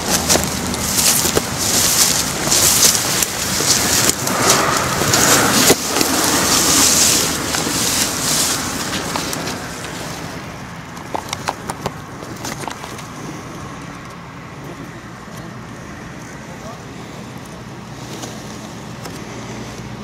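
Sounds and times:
stems snapping: 0.0s - 10.2s
reeds rustling and crackling: 0.0s - 15.0s.

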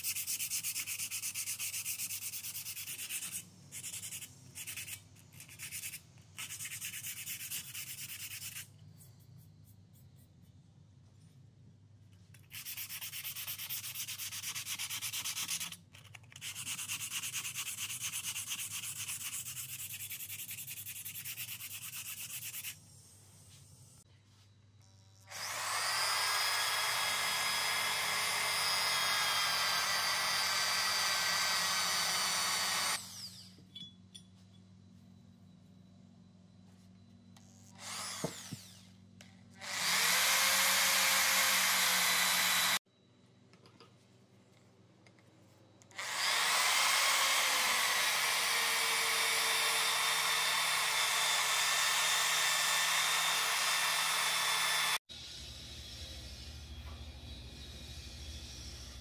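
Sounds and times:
electric drill grinding metal: 24.9s - 33.6s, 37.6s - 39.0s, 39.6s - 42.8s, 45.9s - 59.0s.

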